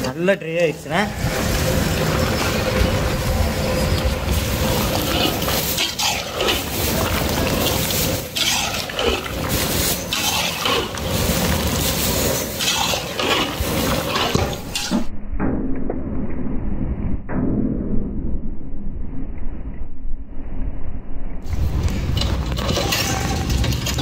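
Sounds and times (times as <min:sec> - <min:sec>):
metal ladle scraping a pan: 0:04.6 - 0:15.1.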